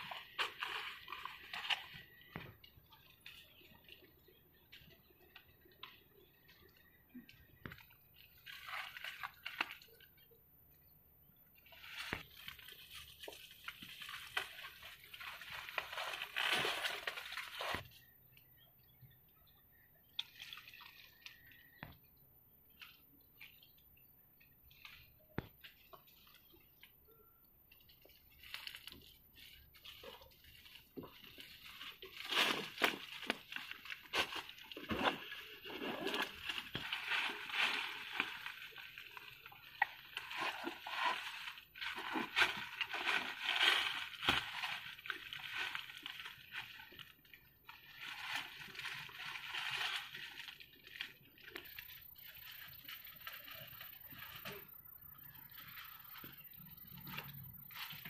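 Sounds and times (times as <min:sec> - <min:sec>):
dry leaves rustling and crackling: 0:00.0 - 0:02.6, 0:11.6 - 0:18.1, 0:28.0 - 0:58.0.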